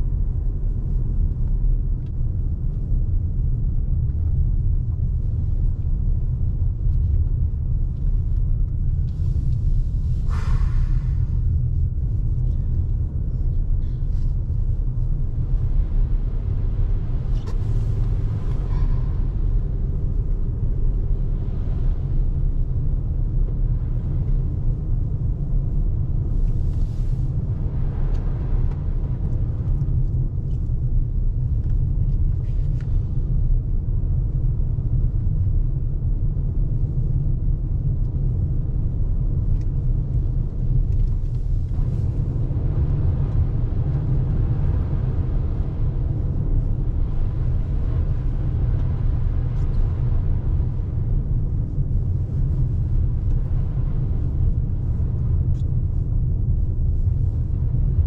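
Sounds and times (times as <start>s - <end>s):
road and tyre rumble inside car: 0.0s - 58.0s
brief hissing: 10.3s - 11.2s.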